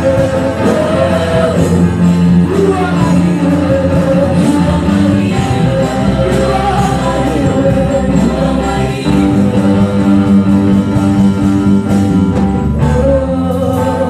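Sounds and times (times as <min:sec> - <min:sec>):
women singing together: 0:00.0 - 0:10.8
drum kit: 0:00.0 - 0:14.0
keyboard: 0:00.0 - 0:14.0
low bass line: 0:00.0 - 0:14.0.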